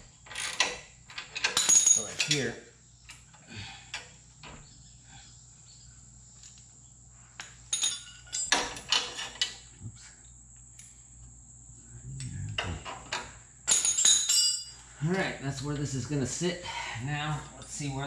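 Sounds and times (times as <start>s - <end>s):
wrench clinking on metal: 0.3s - 2.5s, 13.7s - 14.8s.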